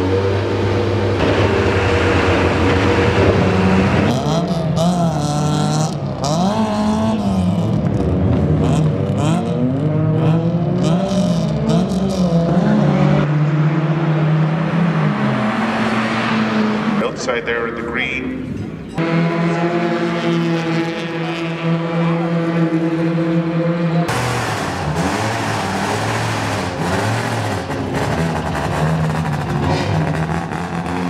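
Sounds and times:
race car engines revving: 0.0 - 31.0
steady engine drone: 0.0 - 31.0.

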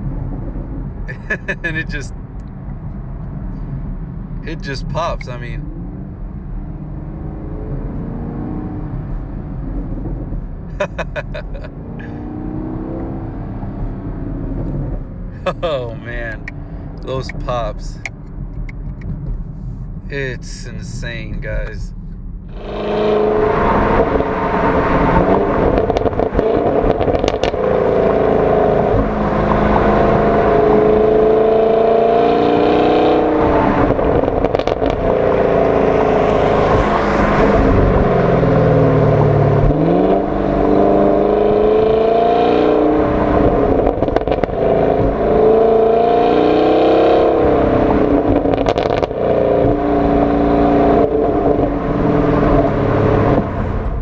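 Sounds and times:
car engine revving: 3.2 - 54.0
exhaust pops and crackles: 16.2 - 19.9, 25.2 - 27.7, 33.8 - 35.8, 43.8 - 45.2, 48.2 - 49.8.

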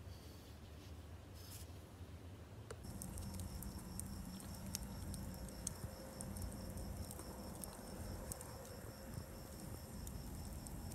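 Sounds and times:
burning logs popping: 2.8 - 10.9
wood fire crackling: 2.8 - 10.9.

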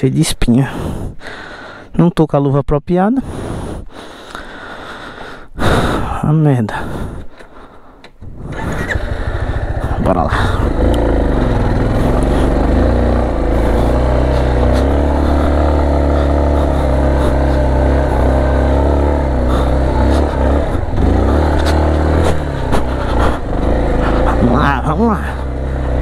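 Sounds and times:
motorcycle engine running: 8.3 - 26.0
knocks and clatters: 21.0 - 23.5.

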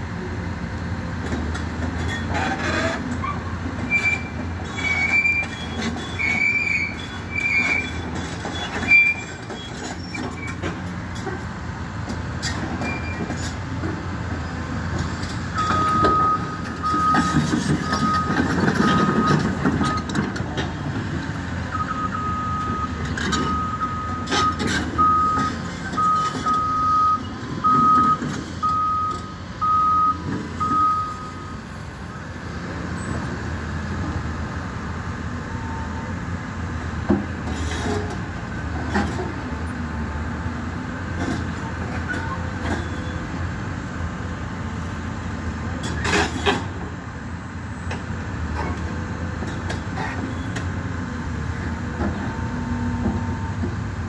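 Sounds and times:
excavator diesel engine running: 0.0 - 54.0
reversing alarm beeping: 15.6 - 20.1, 21.7 - 31.7.

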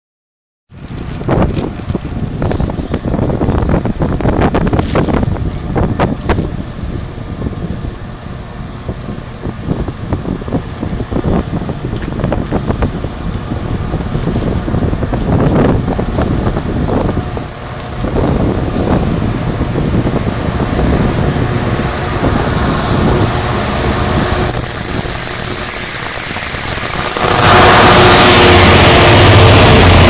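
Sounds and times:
diesel locomotive engine rumble: 0.7 - 30.0
high-pitched squeal: 15.6 - 20.2, 23.9 - 30.0.

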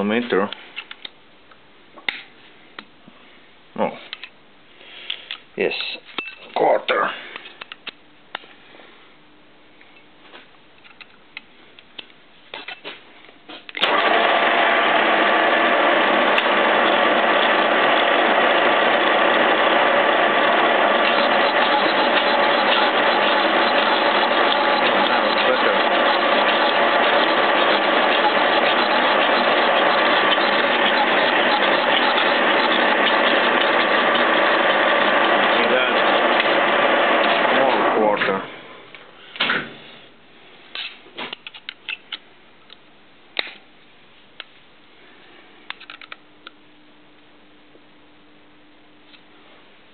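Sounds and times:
boring machine gear whine: 13.8 - 38.2.

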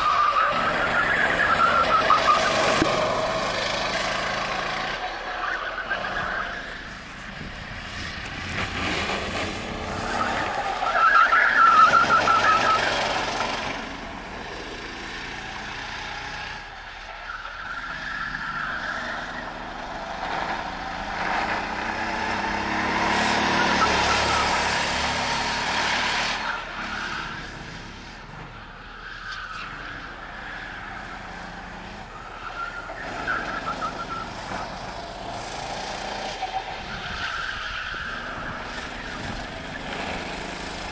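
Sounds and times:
tyres squealing: 0.0 - 7.4, 9.7 - 13.6
kart engines revving past: 0.0 - 16.8, 17.6 - 28.7, 29.5 - 40.9.

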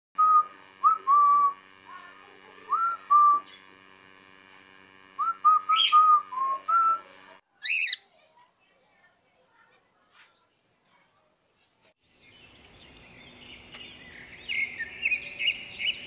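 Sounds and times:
faint steady hum: 0.2 - 7.4, 12.1 - 16.0
harsh bird chirp: 5.6 - 6.2, 7.6 - 8.1, 12.1 - 16.0.

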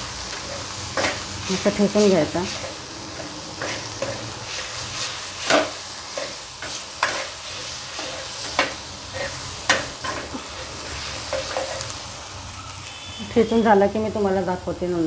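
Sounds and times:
pot crushing chillies on a pan: 0.2 - 12.0.

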